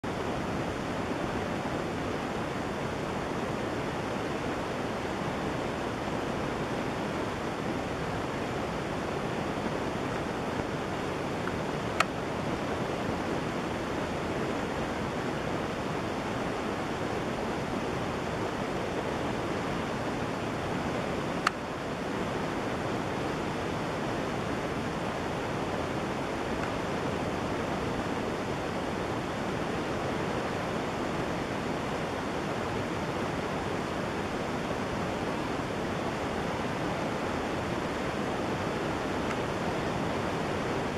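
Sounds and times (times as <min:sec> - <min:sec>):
steady rushing noise: 0:00.0 - 0:40.9.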